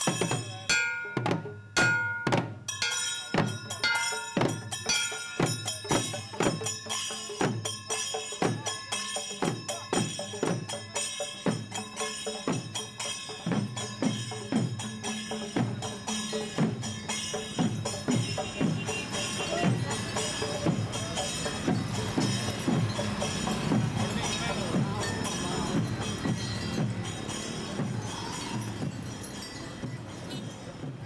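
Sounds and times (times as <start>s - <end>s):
small hand cymbals ringing: 0.0s - 30.9s
drums struck with sticks: 0.0s - 31.0s.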